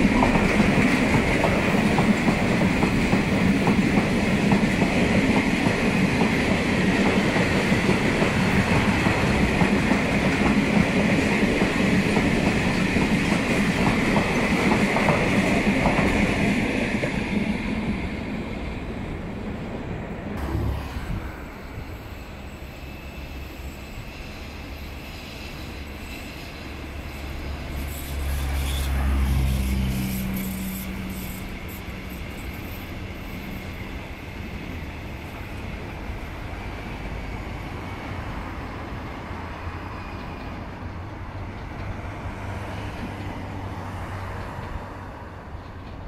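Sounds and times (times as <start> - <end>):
train wheels on rails: 0.0 - 46.0.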